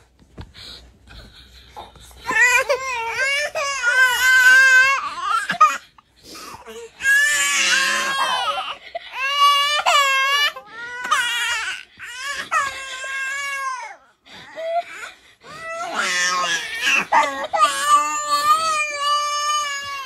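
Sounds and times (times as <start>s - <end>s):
baby crying: 2.3s - 5.8s, 6.7s - 20.0s.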